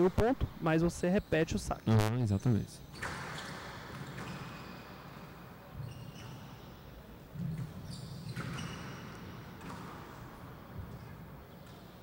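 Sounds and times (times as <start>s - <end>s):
short high squeaks: 5.8s - 6.7s, 7.8s - 9.2s
squash ball smacking racket and walls: 7.3s - 12.0s.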